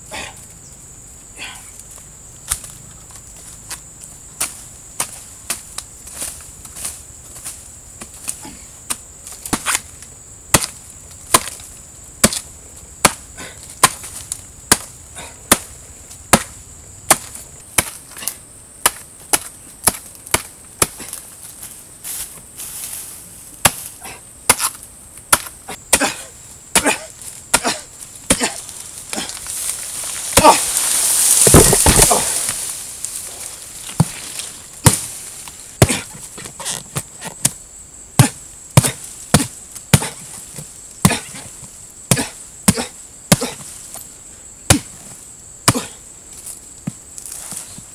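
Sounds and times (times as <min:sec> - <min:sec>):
axe chopping into trunk: 0:08.9 - 0:09.8, 0:10.5 - 0:11.6, 0:12.2 - 0:13.2, 0:13.8 - 0:14.9, 0:15.5 - 0:15.7, 0:16.3 - 0:21.2, 0:23.6 - 0:23.9, 0:24.5 - 0:29.4, 0:30.3 - 0:32.7, 0:33.9 - 0:35.2, 0:35.8 - 0:37.6, 0:38.2 - 0:41.5, 0:42.1 - 0:44.0, 0:44.7 - 0:45.0, 0:45.6 - 0:46.0
palm tree falling crash: 0:24.5 - 0:36.2.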